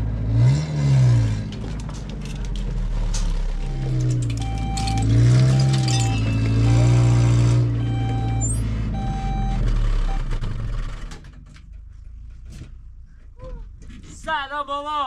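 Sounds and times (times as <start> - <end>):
vehicle engine running: 0.0 - 13.8
reversing alarm beeping: 3.6 - 10.4.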